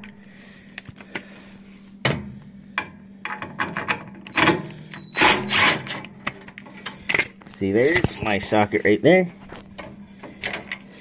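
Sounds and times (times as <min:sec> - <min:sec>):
metal clicks and knocks: 0:02.8 - 0:04.6, 0:09.8 - 0:10.8.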